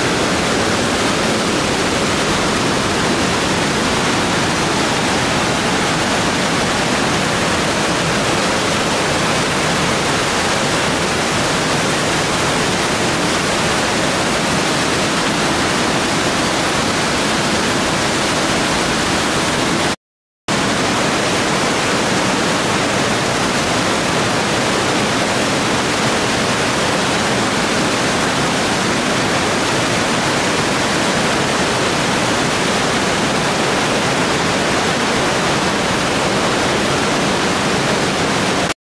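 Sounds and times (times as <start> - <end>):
waterfall rushing: 0.0 - 38.8.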